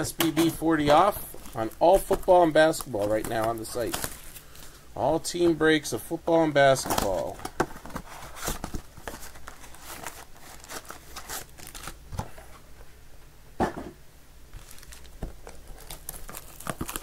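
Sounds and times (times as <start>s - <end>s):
cardboard handled: 0.0s - 4.4s
wrappers crinkling: 0.0s - 4.8s, 6.7s - 12.0s, 14.6s - 17.0s.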